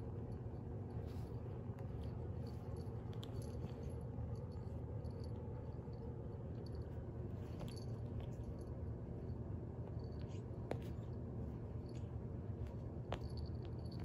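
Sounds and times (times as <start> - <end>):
steady low hum: 0.0 - 14.0
cat scuffling with toy on carpet: 7.0 - 8.6.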